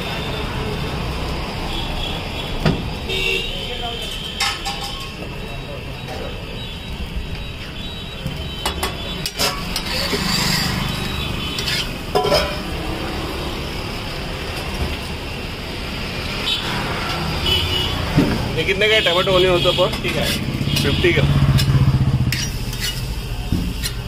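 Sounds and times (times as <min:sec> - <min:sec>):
street noise rumble: 0:00.0 - 0:24.0
food sizzling on griddle: 0:22.3 - 0:24.0.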